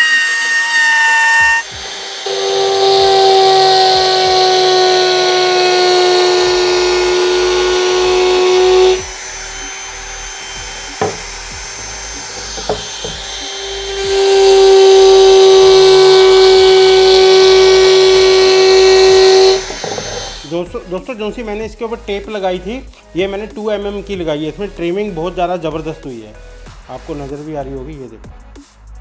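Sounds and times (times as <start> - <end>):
wood router trimming edge: 0.0 - 20.7.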